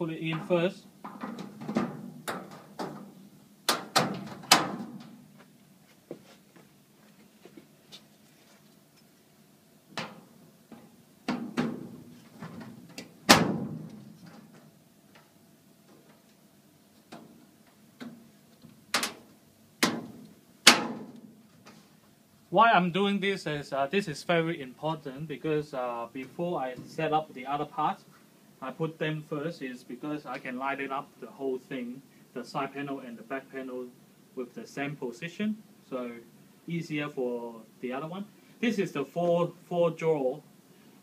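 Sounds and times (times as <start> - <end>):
metal clanks and knocks: 0.4 - 5.2.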